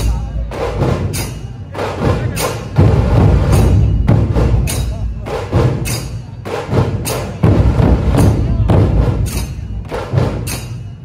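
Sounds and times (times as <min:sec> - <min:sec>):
massed barrel drums beating: 0:00.0 - 0:11.0.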